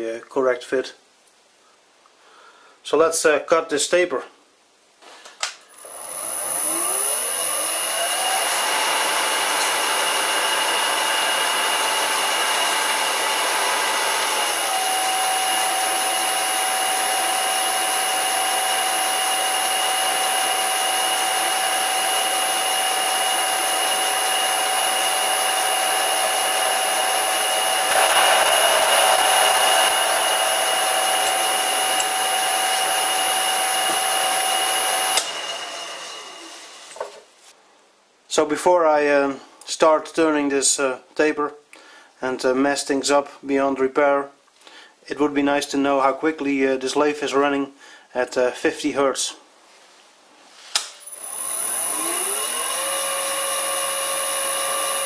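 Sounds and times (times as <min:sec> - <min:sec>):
drill cutting spinning stock: 0:05.7 - 0:37.0, 0:50.8 - 0:55.0
lathe motor whining: 0:05.7 - 0:37.0, 0:51.0 - 0:55.0.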